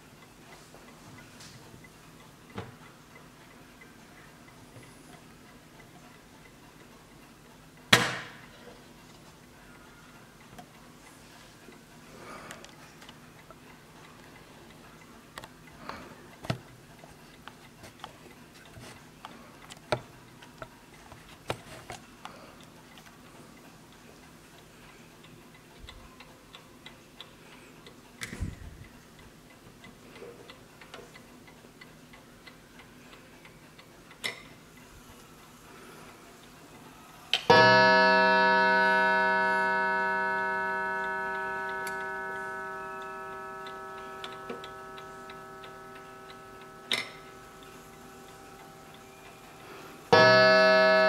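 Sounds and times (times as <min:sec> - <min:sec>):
clock hand click: 0:37.4 - 0:48.7
clock ticking: 0:37.5 - 0:51.0.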